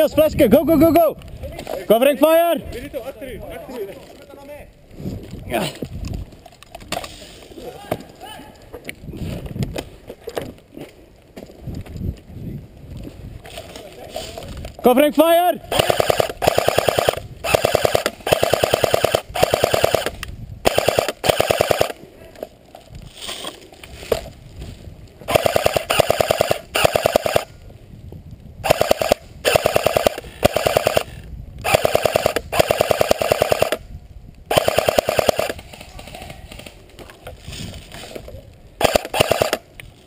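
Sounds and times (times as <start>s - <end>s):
airsoft gun firing bursts: 15.7s - 22.0s, 25.3s - 27.5s, 28.6s - 33.8s, 34.5s - 35.8s, 38.8s - 39.6s.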